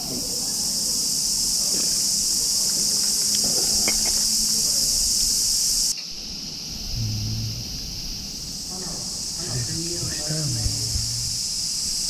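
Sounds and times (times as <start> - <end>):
insects shrilling in chorus: 0.0 - 12.0.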